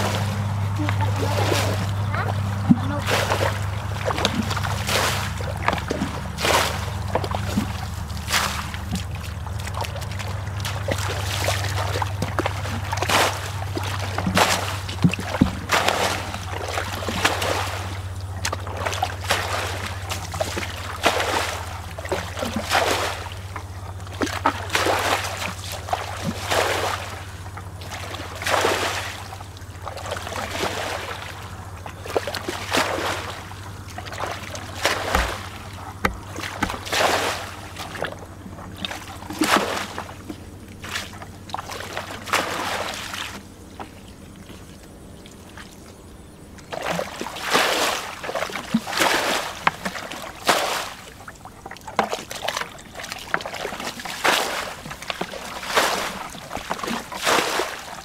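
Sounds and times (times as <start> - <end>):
water splashing from bucket: 0.0 - 44.8, 46.5 - 58.0.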